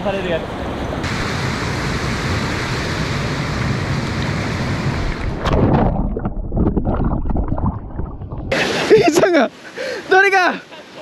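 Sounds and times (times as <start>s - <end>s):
camera splashing into water: 5.2s - 8.6s
muffled underwater bubbling: 5.4s - 8.6s.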